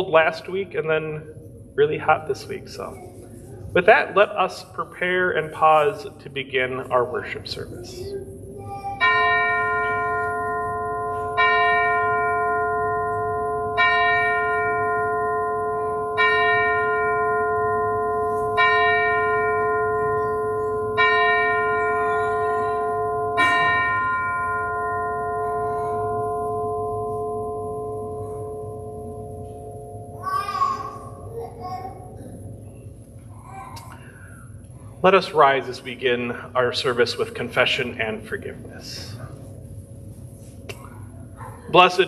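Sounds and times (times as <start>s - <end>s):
bell tolling: 8.8s - 31.3s.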